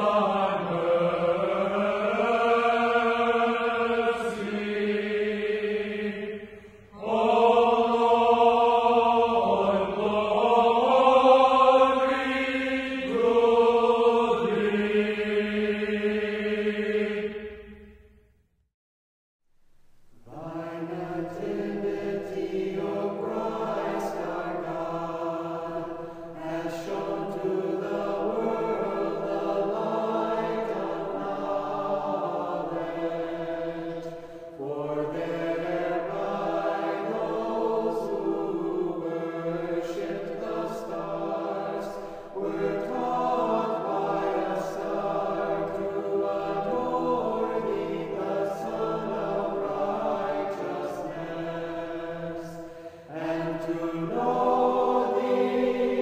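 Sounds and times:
choir singing a slow chant: 0.0s - 18.2s, 20.2s - 56.0s
breaths between phrases: 52.6s - 53.1s.

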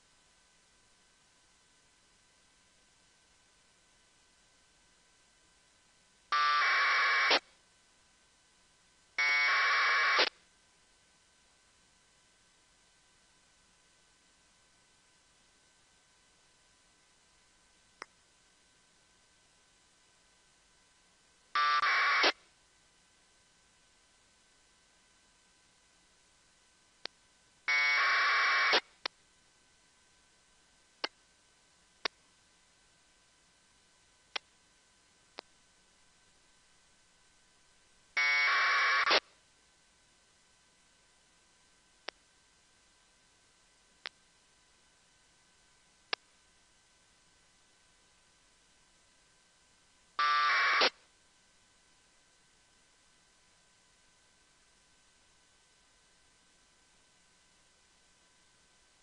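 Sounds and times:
radio data tone bursts: 6.4s - 7.4s, 9.2s - 10.3s, 21.6s - 22.4s, 27.7s - 28.9s, 38.2s - 39.2s, 50.2s - 51.0s.

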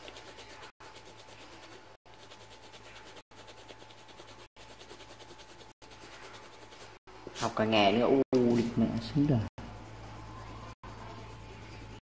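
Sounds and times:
pen colouring paper: 0.0s - 7.0s, 9.6s - 12.0s.

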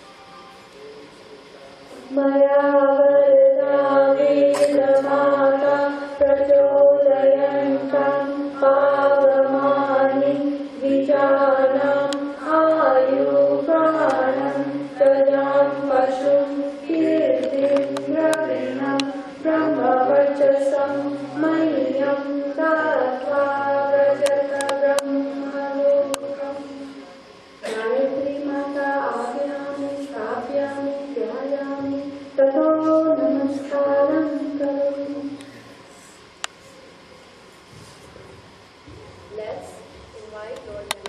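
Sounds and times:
voices singing a devotional chant: 2.1s - 26.9s
held drone tone: 2.1s - 35.7s.

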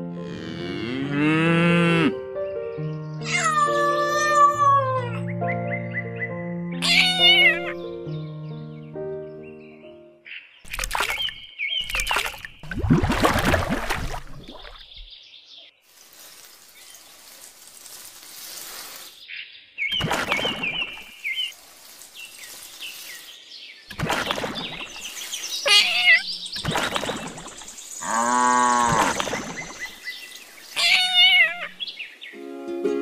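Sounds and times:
birds chirping and trilling: 0.8s - 12.7s, 14.0s - 17.9s, 18.6s - 32.4s
water splashing from bucket: 10.7s - 15.1s, 19.9s - 31.8s.

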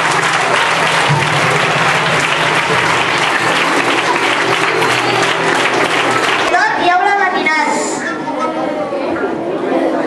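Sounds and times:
children clapping: 0.0s - 7.2s.

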